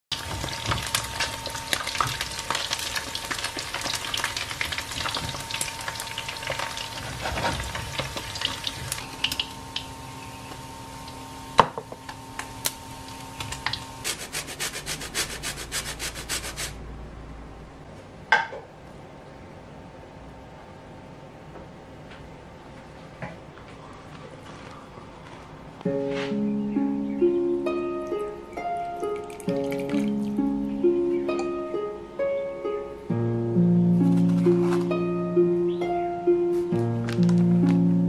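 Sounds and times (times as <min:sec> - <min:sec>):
chicken sizzling in oil: 0:00.1 - 0:11.6.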